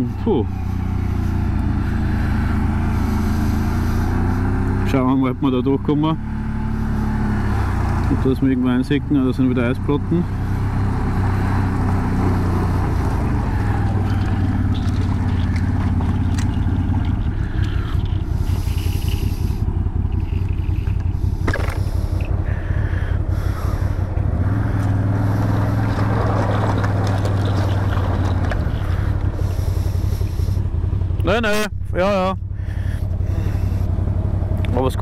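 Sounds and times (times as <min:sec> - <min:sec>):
atv engine running: 0:00.0 - 0:35.0
ice scraping under vehicle: 0:12.1 - 0:22.3, 0:24.6 - 0:30.6.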